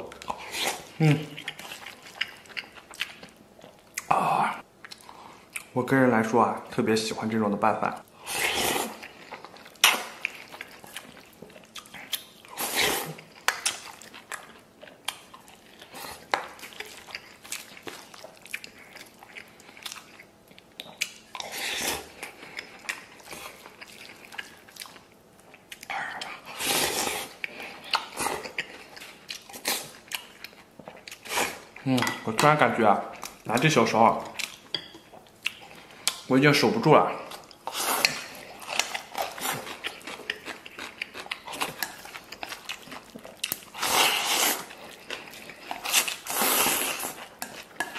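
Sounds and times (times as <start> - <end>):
chewing: 0.0 - 4.1, 4.8 - 5.7, 8.0 - 36.3, 37.2 - 47.9
slurping noodles: 8.2 - 9.0, 26.5 - 27.4, 43.7 - 44.7, 45.8 - 47.2.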